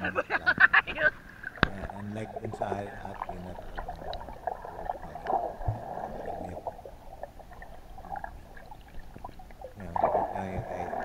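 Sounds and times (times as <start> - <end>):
underwater water churning and bubbling: 0.5 - 11.0.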